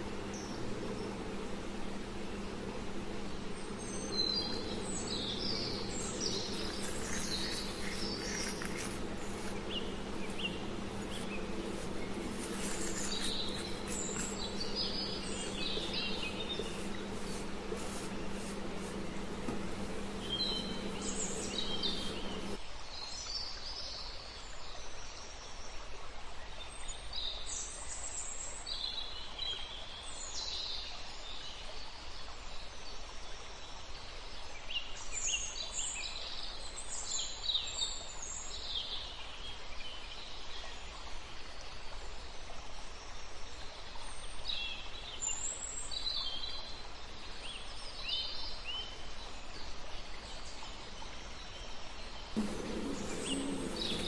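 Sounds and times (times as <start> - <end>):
low hum: 0.0 - 22.6, 52.4 - 54.0
small birds chirping: 0.0 - 22.6, 52.4 - 54.0
steady background hiss: 0.0 - 23.0, 51.9 - 54.0.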